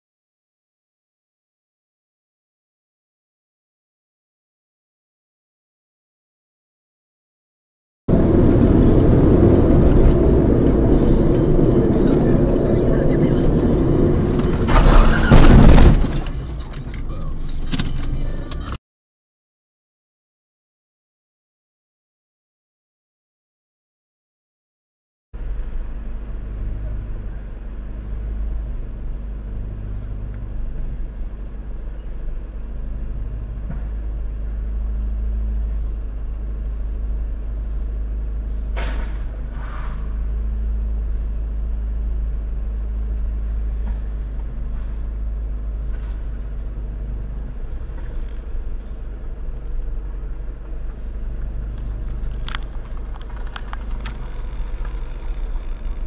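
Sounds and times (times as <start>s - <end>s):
vehicle rumble from inside: 8.1s - 18.8s, 25.4s - 56.0s.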